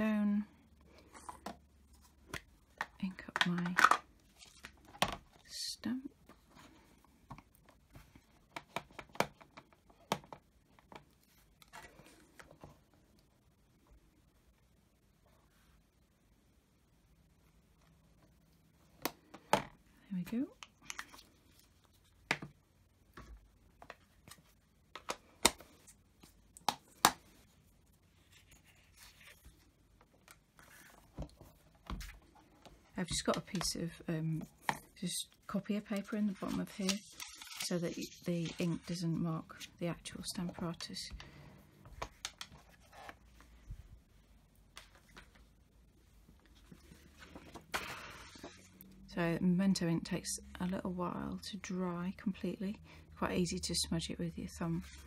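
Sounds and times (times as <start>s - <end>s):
paper rustling: 36.0s - 39.7s.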